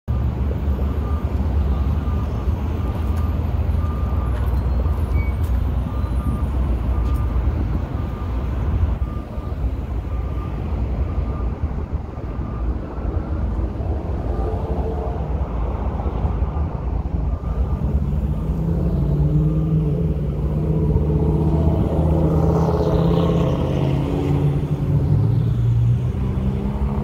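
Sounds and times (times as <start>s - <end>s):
freight train rumbling past: 13.0s - 22.6s.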